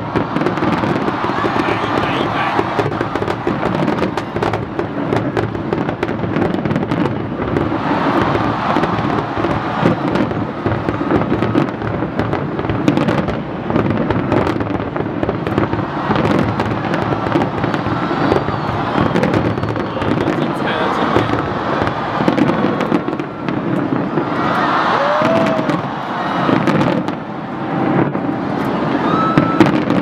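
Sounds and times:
fireworks bangs and crackles: 0.0 - 30.0.

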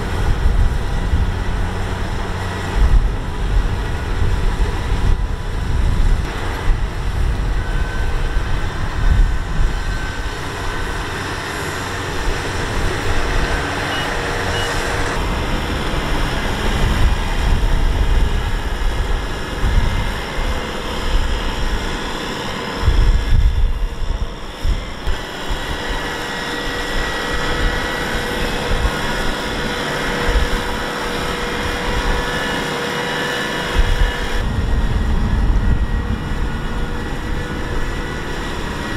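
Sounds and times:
tractor diesel engine running hard: 0.0 - 38.9.

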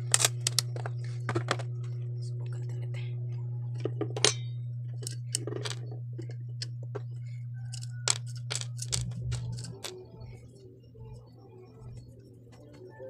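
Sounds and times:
steady low hum: 0.0 - 13.0
hands tapping plastic housing: 7.7 - 10.0.

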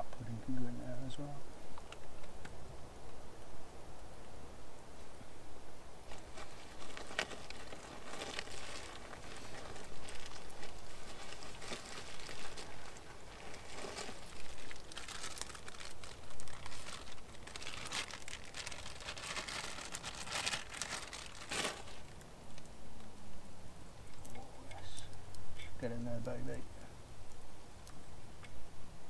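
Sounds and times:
plastic packaging crinkling: 6.1 - 22.3.

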